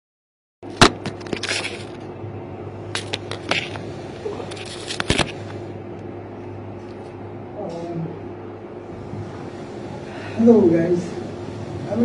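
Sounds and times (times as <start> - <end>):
steady low hum: 0.6 - 12.0
device handling rustling and knocks: 0.8 - 2.0.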